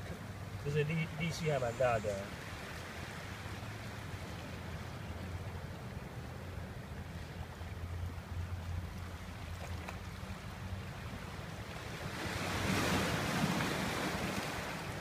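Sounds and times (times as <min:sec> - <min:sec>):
wave washing up stony beach: 0:11.8 - 0:15.0.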